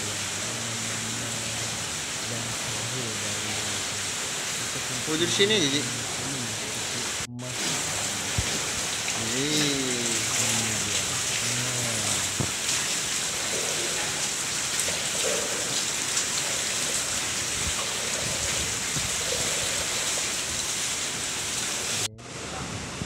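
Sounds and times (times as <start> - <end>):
tap water splashing on tile: 12.1 - 13.9.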